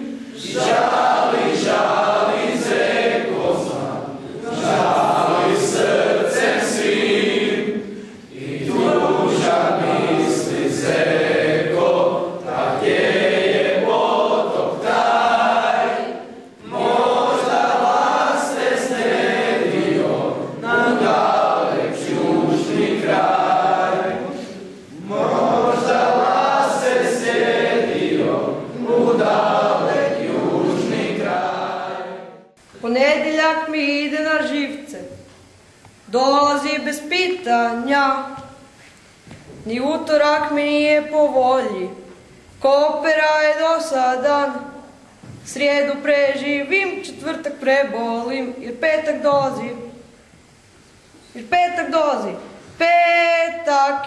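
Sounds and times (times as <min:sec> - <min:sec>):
boys singing in chorus: 0:00.0 - 0:32.5.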